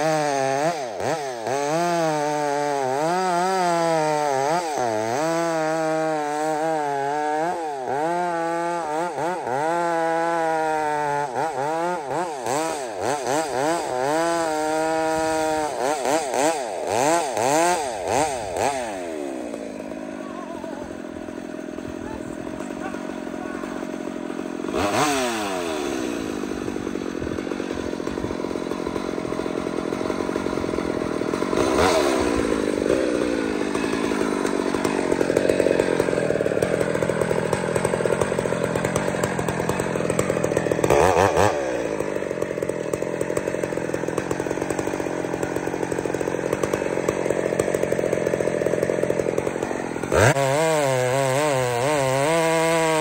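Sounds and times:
chainsaw cutting log: 0.0 - 53.0.

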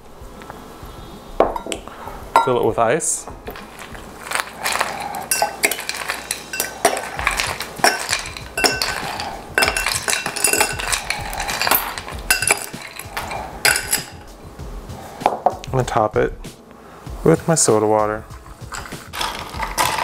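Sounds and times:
ice cubes clinking in glass: 3.5 - 14.2, 18.7 - 20.0.

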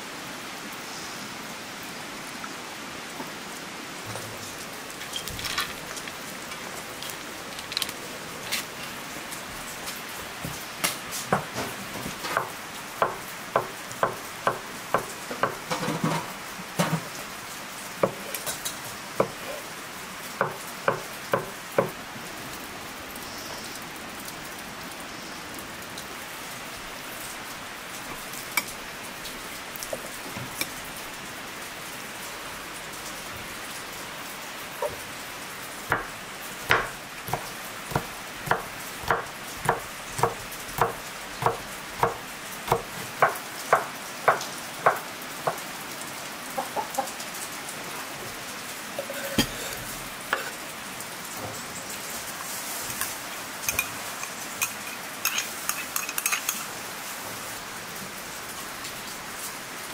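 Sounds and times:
background hiss: 0.0 - 59.9
knife chopping on wooden board: 35.9 - 45.6.

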